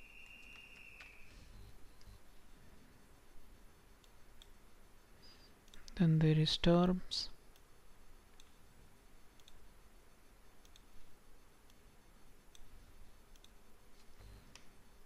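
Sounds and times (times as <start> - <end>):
computer mouse clicks: 4.0 - 4.6, 8.3 - 8.6, 9.3 - 9.6, 10.6 - 11.0, 12.5 - 12.7, 13.3 - 14.7.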